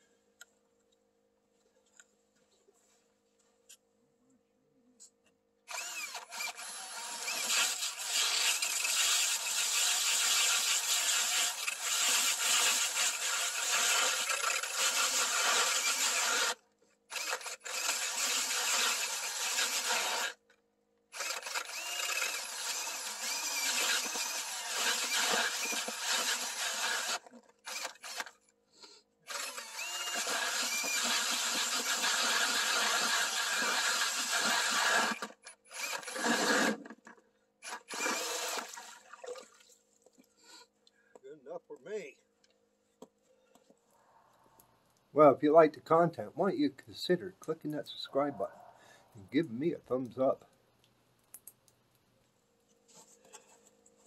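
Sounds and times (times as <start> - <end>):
drill boring through ice: 5.7 - 20.4, 21.1 - 28.4, 29.3 - 39.0.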